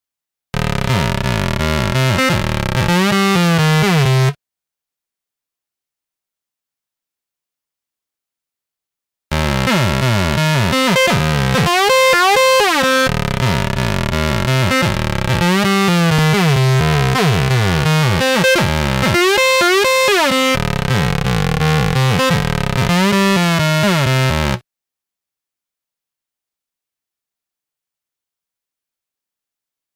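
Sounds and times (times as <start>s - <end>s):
squeaky synthesizer sequence: 9.4s - 24.6s.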